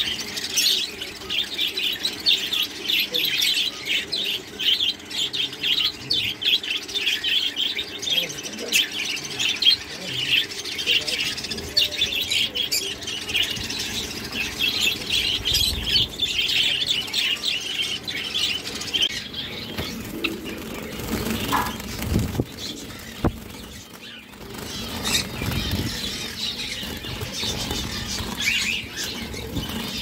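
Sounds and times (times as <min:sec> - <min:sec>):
sparrows chirping: 0:00.0 - 0:30.0
wings fluttering: 0:11.3 - 0:30.0.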